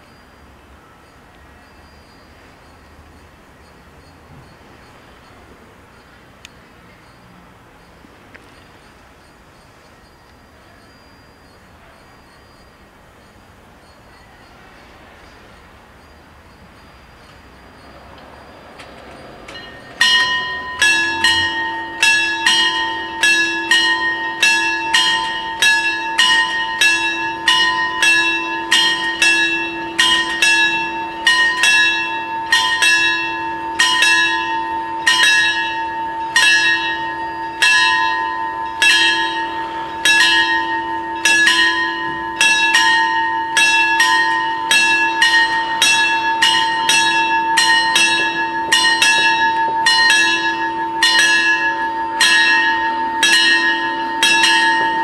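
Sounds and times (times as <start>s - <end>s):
level crossing bells ringing: 16.0s - 55.0s.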